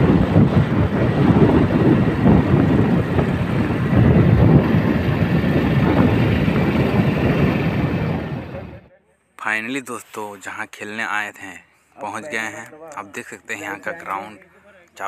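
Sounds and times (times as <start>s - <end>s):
wind buffeting on microphone: 0.0s - 8.9s.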